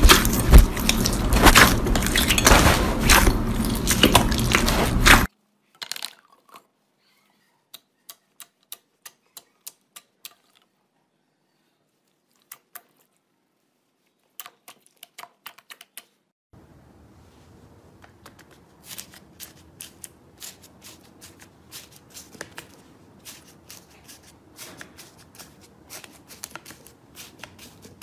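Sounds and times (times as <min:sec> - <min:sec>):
slime squelching: 0:00.0 - 0:05.3.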